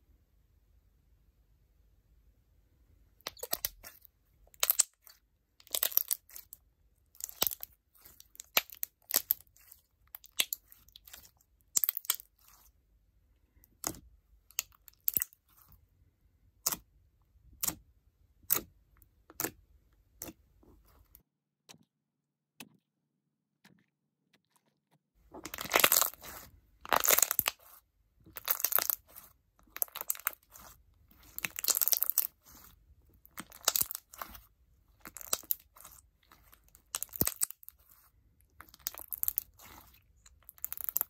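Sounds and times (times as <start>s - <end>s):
slime crackling and popping: 3.2s - 6.6s, 7.2s - 12.6s, 25.4s - 41.0s.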